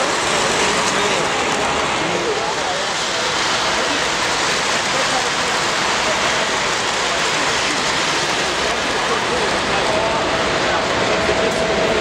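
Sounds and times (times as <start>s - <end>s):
crowd murmuring: 0.0s - 12.0s
model train wheels on rails: 0.0s - 12.0s.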